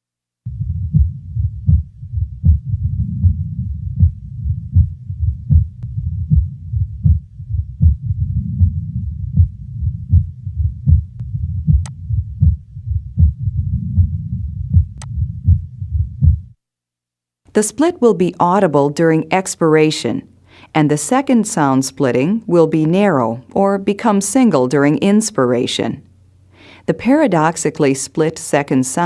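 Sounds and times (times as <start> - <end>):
heartbeat through stethoscope: 0.5 - 16.6
person breathing: 20.4 - 20.8, 26.5 - 26.9.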